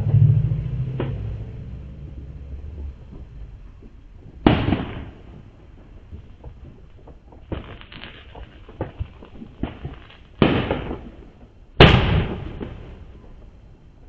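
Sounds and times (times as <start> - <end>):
crackling firework pops: 2.8 - 13.5
firework bangs echoing: 2.9 - 13.6.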